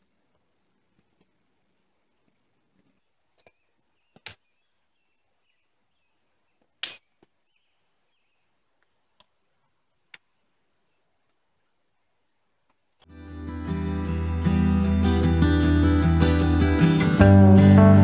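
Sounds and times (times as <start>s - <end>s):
wood sticks knocking and snapping: 6.6s - 7.4s.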